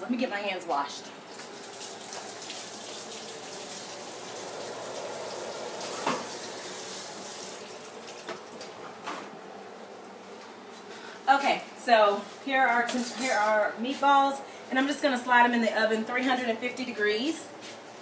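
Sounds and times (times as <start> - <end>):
tap running into sink: 5.3 - 7.5.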